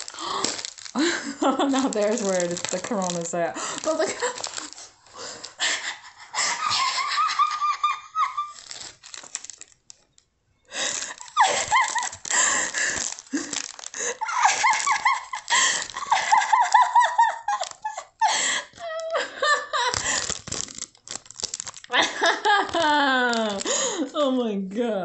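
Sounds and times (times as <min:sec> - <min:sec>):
woman laughing hard: 0:01.0 - 0:02.3, 0:03.6 - 0:08.7, 0:10.8 - 0:20.3, 0:21.9 - 0:24.0.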